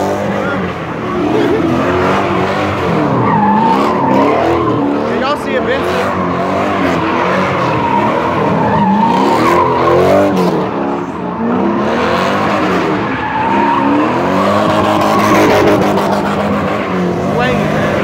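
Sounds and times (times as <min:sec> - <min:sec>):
car engine revving: 0:00.0 - 0:18.0
tires squealing: 0:00.0 - 0:18.0.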